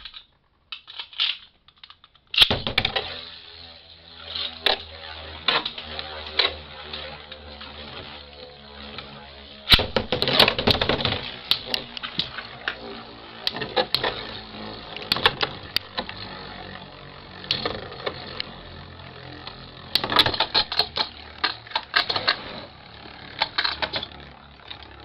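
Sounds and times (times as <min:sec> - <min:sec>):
spinning tops clacking together: 0:08.8 - 0:25.0.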